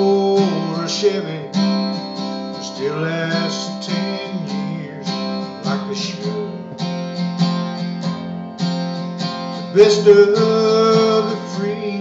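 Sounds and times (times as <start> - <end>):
person singing: 0.0 - 7.2, 9.6 - 12.0
acoustic guitar strumming: 0.0 - 12.0.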